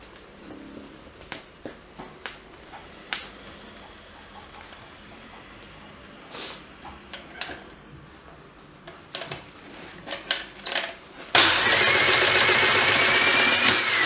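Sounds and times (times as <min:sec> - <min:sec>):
breaker motor whining: 0:11.4 - 0:14.0.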